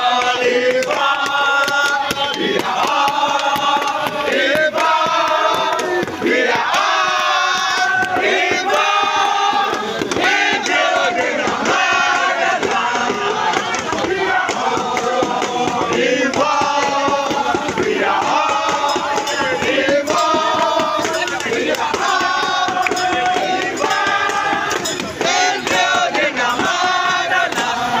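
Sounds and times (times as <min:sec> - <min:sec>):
crowd chanting: 0:00.0 - 0:28.0.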